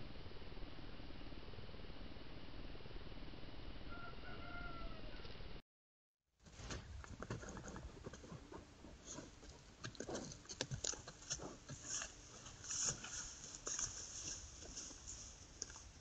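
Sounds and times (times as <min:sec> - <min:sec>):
wild boar rustling through dry grass: 0:08.8 - 0:16.0.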